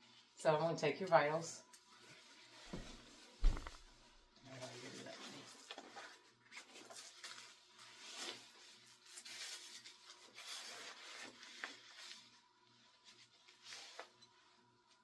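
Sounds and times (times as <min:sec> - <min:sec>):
fabric cuff rustling: 0:02.7 - 0:04.0.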